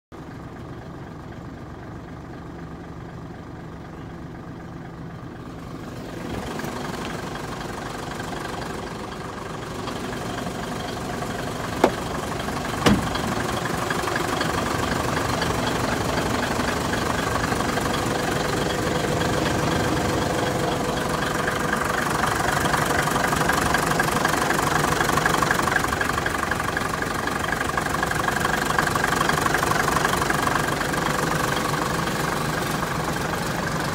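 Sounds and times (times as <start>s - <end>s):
diesel truck engine idling: 0.1s - 33.9s.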